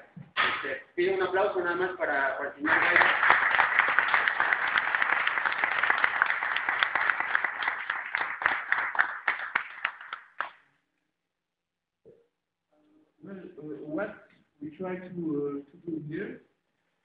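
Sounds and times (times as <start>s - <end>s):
audience applause: 2.6s - 10.6s.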